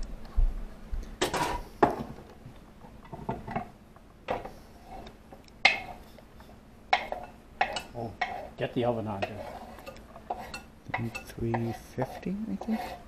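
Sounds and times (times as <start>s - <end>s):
dishes and utensils clattering: 1.2s - 2.2s, 3.0s - 3.7s, 6.9s - 13.0s.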